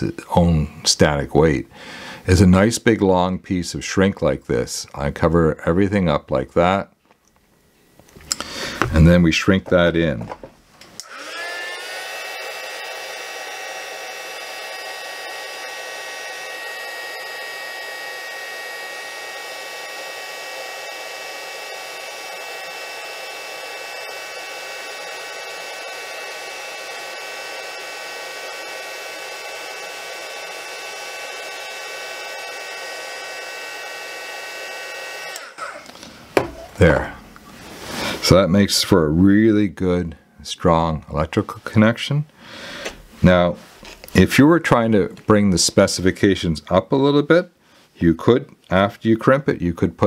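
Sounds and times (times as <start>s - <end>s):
heat gun blowing with fan whine: 11.0s - 36.9s.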